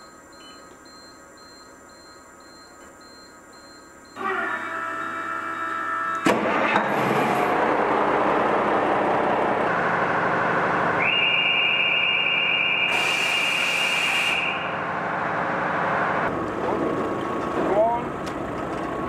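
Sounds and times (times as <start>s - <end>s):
ferry machinery running: 4.2s - 19.0s.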